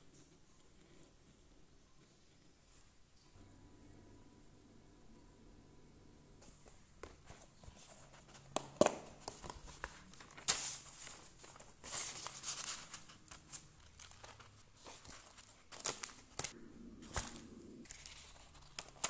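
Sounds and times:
paper rustling: 6.4 - 19.0.

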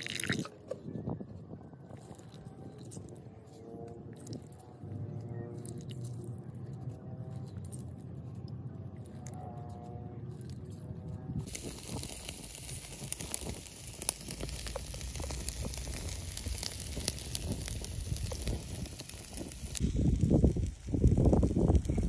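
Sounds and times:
low rumbling noise: 0.0 - 22.0
crackling pops: 11.4 - 22.0
meat sizzling on a grill: 11.5 - 22.0.

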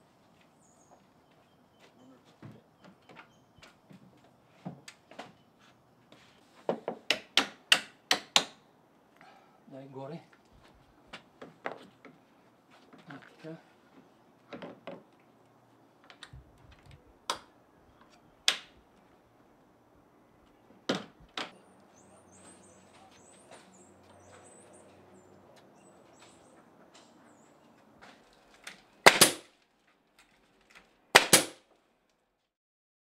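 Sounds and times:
faint high bird chirps: 0.5 - 3.7
hammer knocking nails: 6.7 - 8.6, 29.1 - 29.5, 31.2 - 31.6
nail gun shots: 7.1 - 8.6, 29.0 - 29.5, 31.2 - 31.6.

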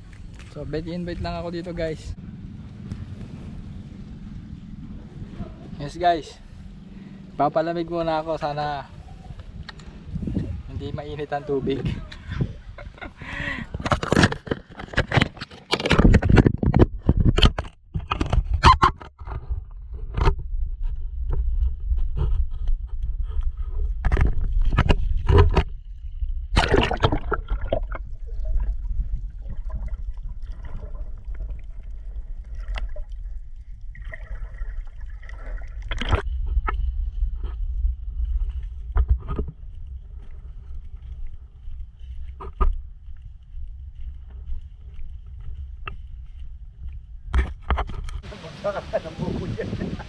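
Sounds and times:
water sloshing: 0.0 - 10.7, 24.0 - 49.8
steady low rumble: 0.0 - 13.8, 19.4 - 50.0
camera scraping against microphone: 13.6 - 28.1, 35.8 - 40.8, 42.2 - 42.8, 47.3 - 48.3.

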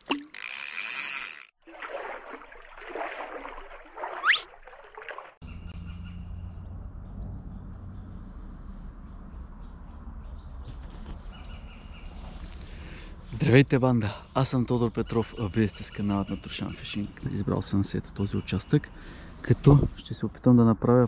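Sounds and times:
running water: 0.0 - 5.4.

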